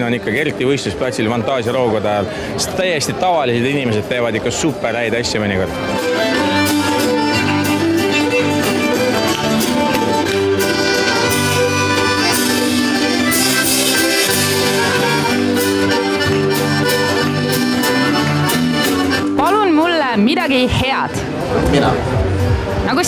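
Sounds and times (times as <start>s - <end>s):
fiddle: 5.6s - 20.0s
bass line: 5.7s - 19.9s, 21.2s - 23.0s.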